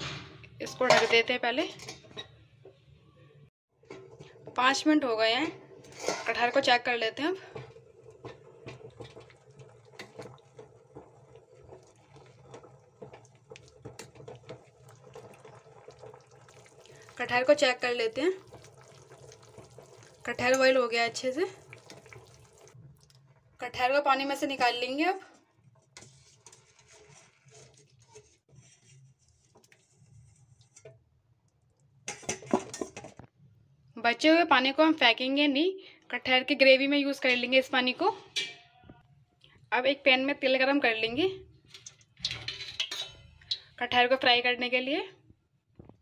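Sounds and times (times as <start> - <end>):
water sloshing in a pot: 0.6 - 33.5, 36.7 - 44.8
spoon clinking on steel pot: 38.3 - 38.7, 41.8 - 43.7.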